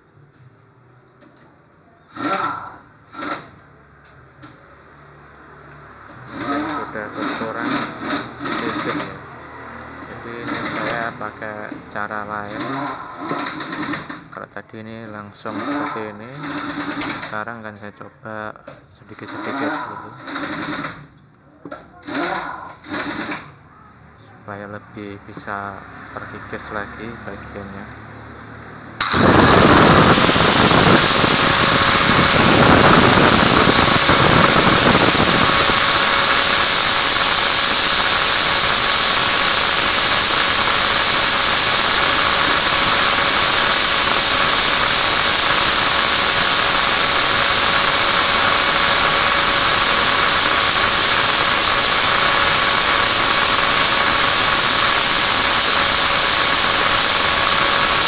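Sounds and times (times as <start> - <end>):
angle grinder whine: 5.9 - 21.1, 24.5 - 58.0
grinding disc on metal: 29.0 - 58.0.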